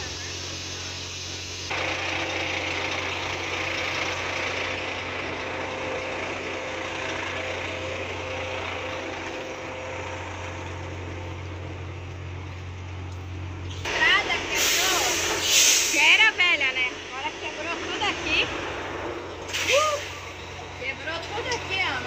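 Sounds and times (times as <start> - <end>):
rushing hiss: 0.0 - 1.8, 13.9 - 16.3, 18.6 - 20.3
diesel engine idling: 0.0 - 22.0.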